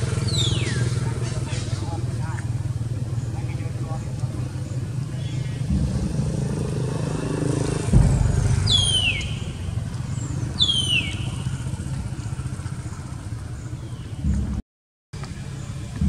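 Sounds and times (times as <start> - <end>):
low engine rumble: 0.0 - 14.6, 15.2 - 16.0
thump: 7.9 - 9.5.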